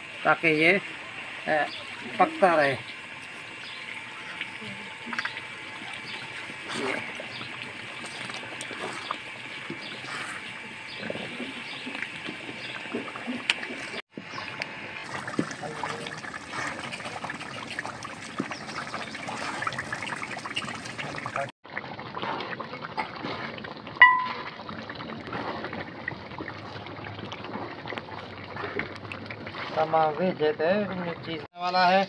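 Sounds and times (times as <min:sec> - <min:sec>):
mixture bubbling in hot oil: 0:00.0 - 0:32.0
short ringing tone: 0:24.0 - 0:24.4.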